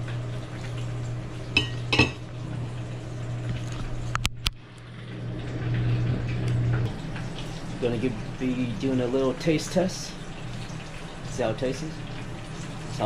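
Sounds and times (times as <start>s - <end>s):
steady low hum: 0.0s - 13.0s
knife clinking against ceramic plate: 1.6s - 2.2s.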